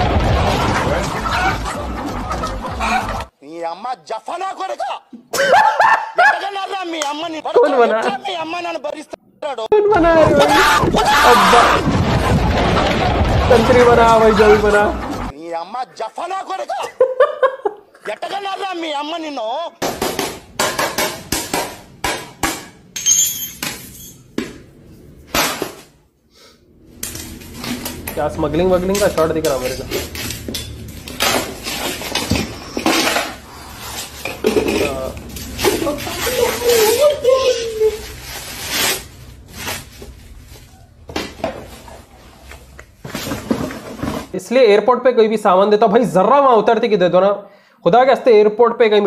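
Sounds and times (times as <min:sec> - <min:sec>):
ceramic plates smashing on floor: 0:19.8 - 0:24.6, 0:25.3 - 0:25.9, 0:28.9 - 0:37.2
broken porcelain clinking: 0:34.2 - 0:35.2.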